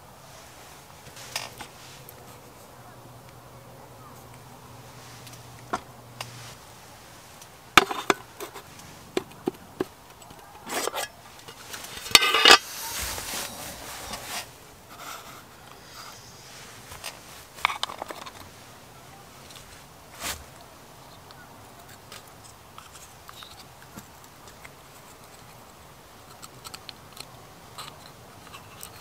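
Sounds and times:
metal clatter and scrape: 7.2s - 8.9s, 10.7s - 14.5s, 15.9s - 18.6s
tableware clinking on wooden table: 10.7s - 12.7s.

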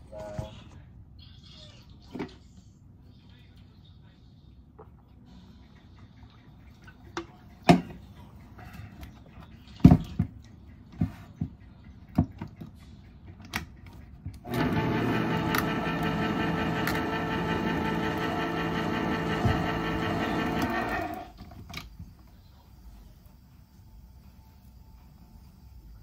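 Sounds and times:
blender motor running: 14.5s - 21.3s.

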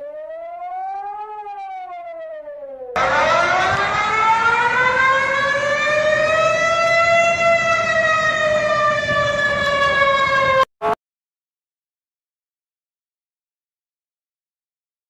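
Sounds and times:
warning siren rising and falling: 0.0s - 11.0s.

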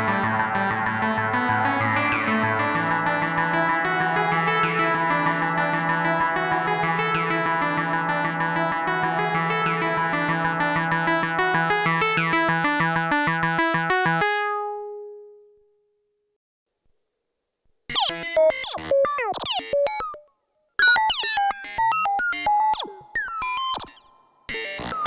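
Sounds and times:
choppy swooping synthesizer notes: 0.0s - 15.1s
synthesizer notes with reverb: 0.0s - 15.5s.

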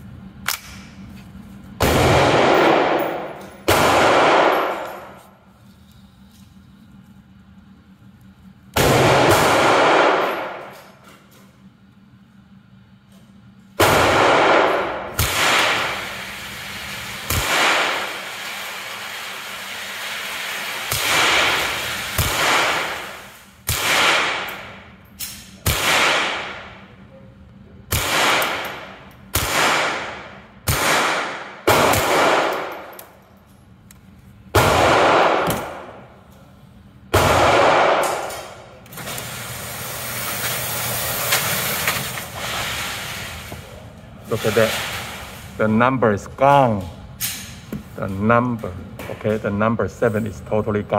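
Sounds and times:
rifle shots echoing: 1.8s - 5.1s, 8.8s - 10.7s, 13.8s - 16.2s, 17.2s - 18.4s, 20.9s - 24.8s, 25.6s - 26.8s, 27.9s - 32.9s, 34.5s - 36.0s, 37.1s - 38.6s.

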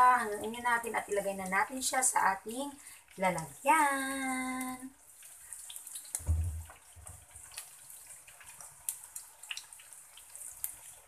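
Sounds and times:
food deep-frying in oil: 0.0s - 11.0s
oil crackles and pops: 0.0s - 11.0s
low thump: 6.2s - 6.7s.

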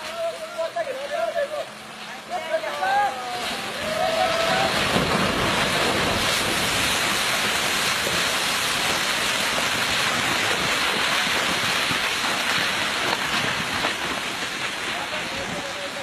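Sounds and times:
earth and rock pouring down: 3.4s - 16.0s.

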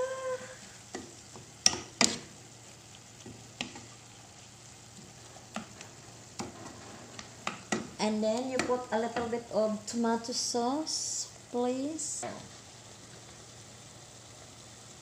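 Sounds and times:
meat sizzling in a pan: 0.0s - 15.0s
wooden spoon knocking pan: 0.9s - 2.3s, 6.4s - 9.5s.

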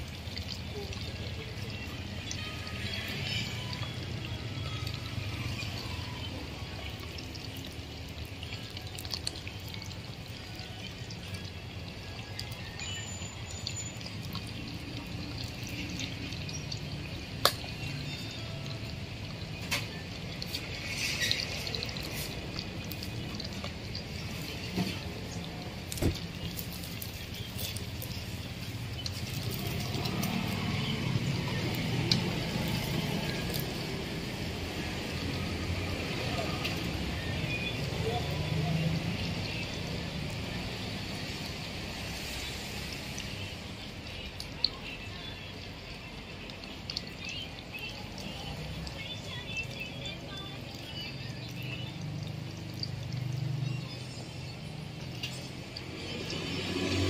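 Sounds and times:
deep-frying oil sizzling: 0.0s - 57.0s
oil pops and crackles: 6.8s - 13.0s, 13.6s - 35.4s, 45.5s - 54.0s, 54.9s - 55.9s.

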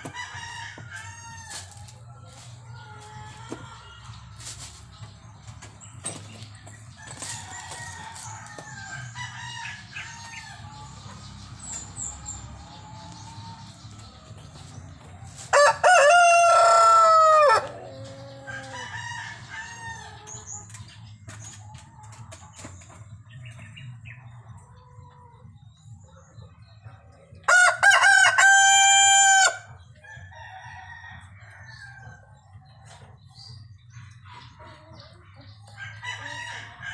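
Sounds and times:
hen clucking: 7.3s - 25.7s, 32.2s - 36.9s
rooster crowing: 15.5s - 20.1s, 27.5s - 29.7s.

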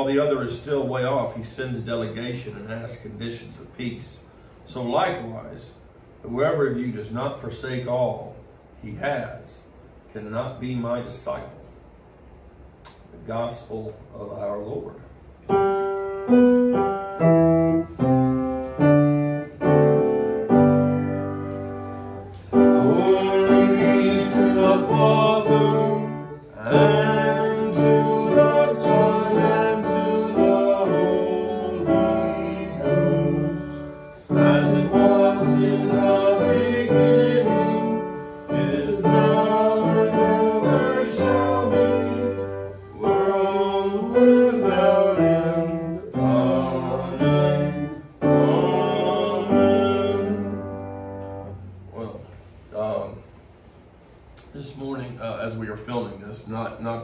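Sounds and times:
piano music: 15.5s - 51.8s
voices singing: 22.4s - 51.2s.

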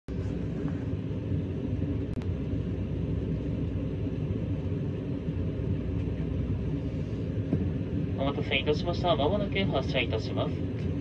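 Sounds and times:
electric train rumble and hum: 0.1s - 11.0s.

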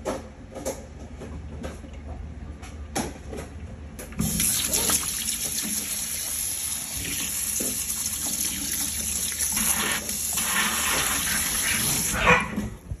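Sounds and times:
faucet water splashing in sink: 4.2s - 12.2s.

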